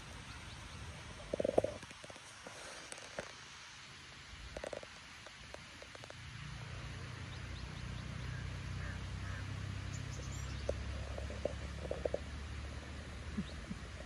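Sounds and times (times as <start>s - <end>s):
wind rumble on microphone: 10.0s - 14.0s.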